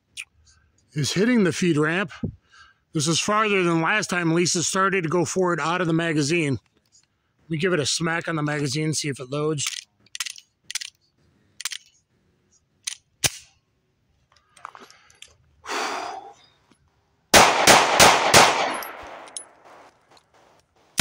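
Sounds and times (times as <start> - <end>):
pistol handling clicks: 9.6 - 11.0, 11.6 - 12.0, 12.8 - 13.6, 17.4 - 20.3
pistol shots: 17.3 - 19.9.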